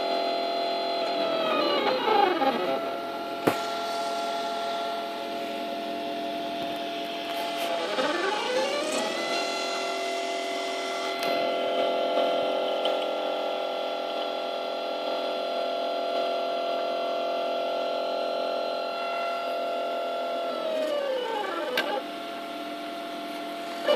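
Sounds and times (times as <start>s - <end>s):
stepper motors whining: 0.0s - 14.4s, 17.9s - 22.6s, 23.2s - 23.9s.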